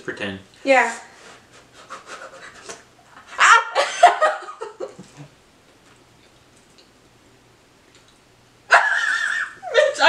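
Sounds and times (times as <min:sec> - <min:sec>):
person giggling: 0:08.7 - 0:10.0.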